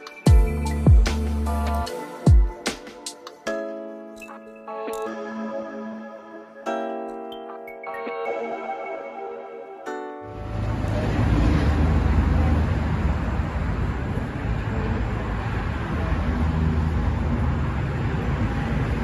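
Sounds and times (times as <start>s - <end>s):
road traffic rumble: 10.3s - 19.0s.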